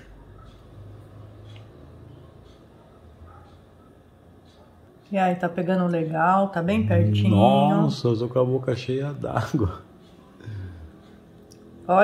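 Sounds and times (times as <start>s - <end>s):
low steady hum: 6.6s - 8.2s.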